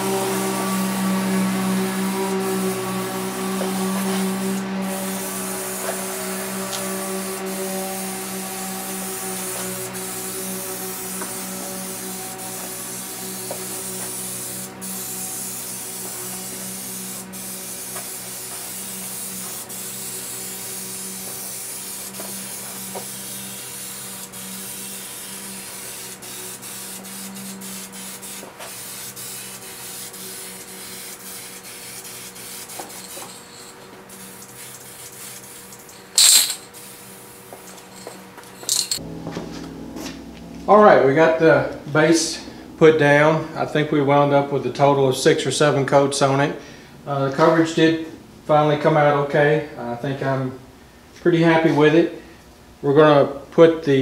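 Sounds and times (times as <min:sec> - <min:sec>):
spray-paint can hissing: 0:00.3 - 0:39.0.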